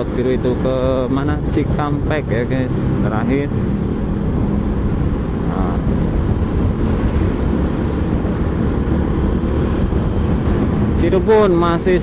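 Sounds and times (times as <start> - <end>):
road noise: 0.0 - 12.0
wind rushing over microphone: 0.0 - 12.0
motorcycle engine: 0.7 - 11.4.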